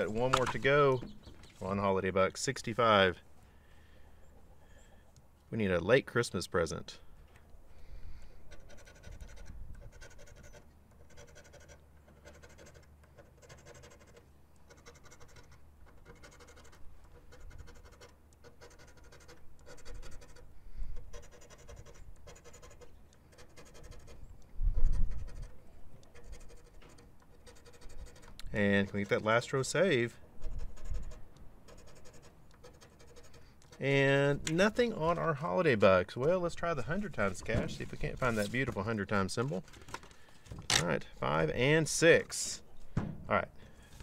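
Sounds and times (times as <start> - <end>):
scratch-off ticket being scratched: 8.5 - 35.5, 36.1 - 39.9
dull thump: 42.9 - 43.3.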